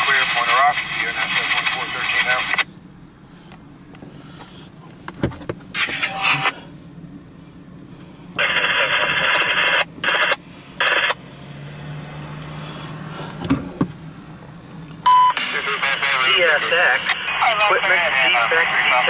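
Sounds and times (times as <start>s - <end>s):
radio static bursts: 0.0s - 2.8s, 5.7s - 6.7s, 8.4s - 11.2s, 15.3s - 19.0s.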